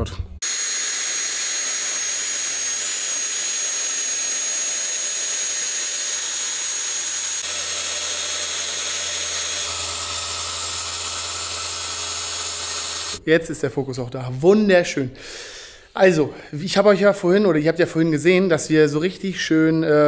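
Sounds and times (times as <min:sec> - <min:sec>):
power tool motor whining: 0:00.4 - 0:13.2.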